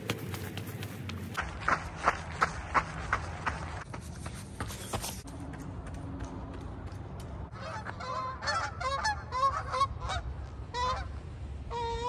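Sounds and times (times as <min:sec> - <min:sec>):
geese honking: 0:07.5 - 0:12.0.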